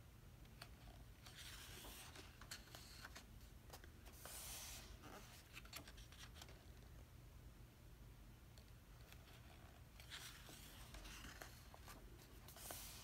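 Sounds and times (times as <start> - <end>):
book pages turning: 0.5 - 6.9, 9.0 - 13.0.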